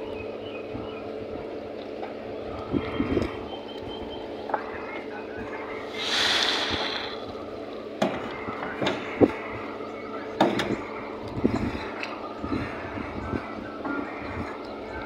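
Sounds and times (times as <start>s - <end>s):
machinery hum: 0.0s - 15.0s
short rush of hiss: 5.9s - 7.2s.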